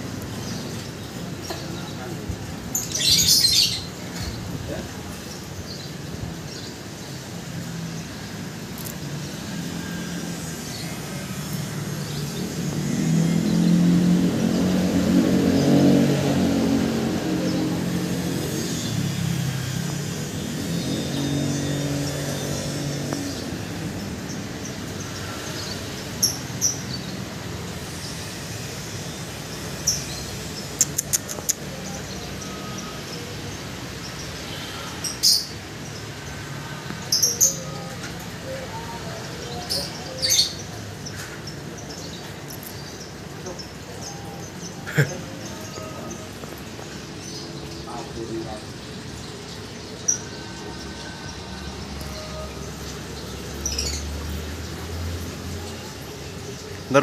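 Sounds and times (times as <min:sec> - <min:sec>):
vehicle engine passing: 0:09.5 - 0:32.8
sharp clicks: 0:30.8 - 0:31.6.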